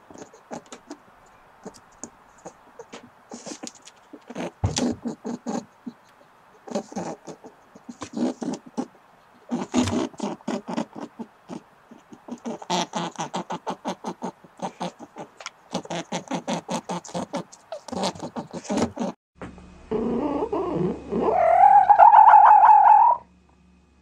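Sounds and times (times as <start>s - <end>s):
fox kit whining call: 19.9s - 23.3s.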